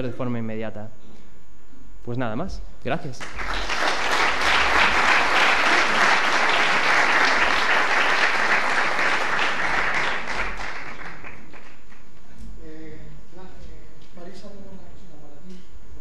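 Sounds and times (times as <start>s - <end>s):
audience applauding: 3.2s - 12.1s.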